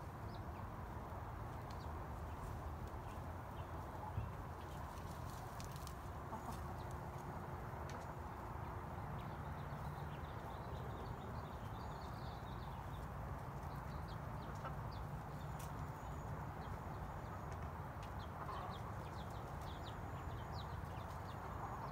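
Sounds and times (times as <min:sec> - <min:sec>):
hens clucking softly: 0:05.6 - 0:07.2.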